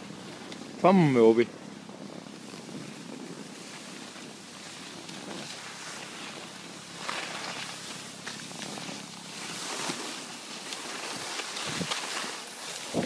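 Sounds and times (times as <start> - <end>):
skis sliding over snow: 0.0 - 13.0
wind buffeting microphone: 11.6 - 12.0, 12.8 - 13.0.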